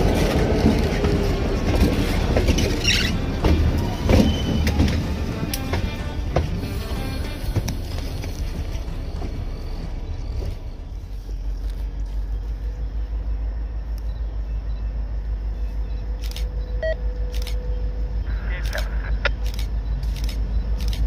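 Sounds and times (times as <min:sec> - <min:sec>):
diesel locomotive rumbling: 0:00.0 - 0:21.0
background music: 0:01.4 - 0:10.6.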